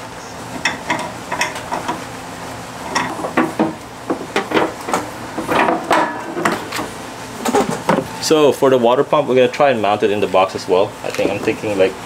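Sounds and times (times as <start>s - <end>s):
gas hose knocking and rattling: 0.6s - 2.0s, 2.9s - 8.1s.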